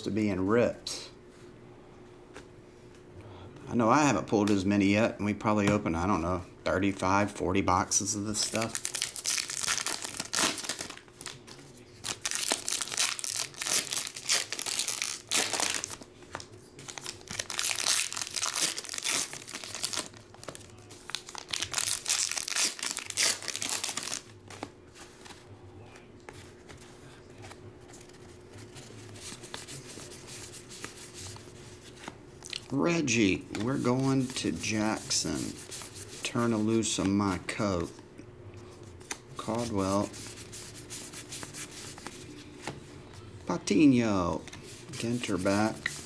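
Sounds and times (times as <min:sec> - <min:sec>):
cards rustling and sliding: 0:08.4 - 0:25.4, 0:26.2 - 0:32.2, 0:38.8 - 0:42.8
wrappers torn and crinkled: 0:08.5 - 0:16.0, 0:16.9 - 0:24.3.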